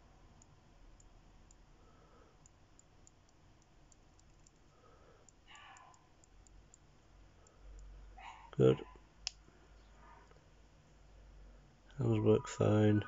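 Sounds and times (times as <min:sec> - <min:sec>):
watch crown clicking: 0:02.4 - 0:06.8.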